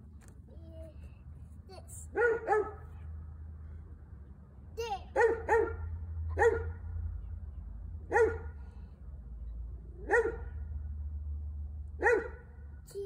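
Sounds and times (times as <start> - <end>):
dog barking: 2.1 - 2.9, 5.2 - 6.8, 8.1 - 8.6, 10.0 - 10.6, 12.0 - 12.5.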